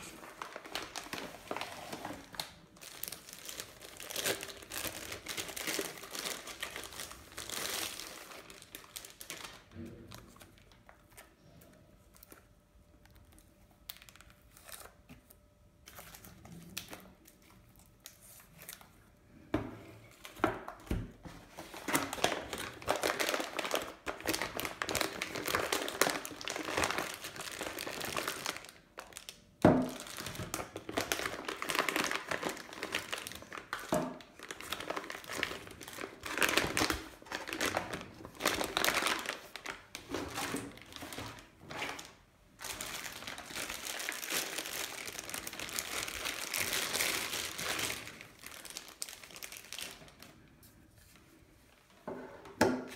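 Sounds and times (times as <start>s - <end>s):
plastic packaging crinkling: 0.0s - 19.1s, 20.1s - 50.6s.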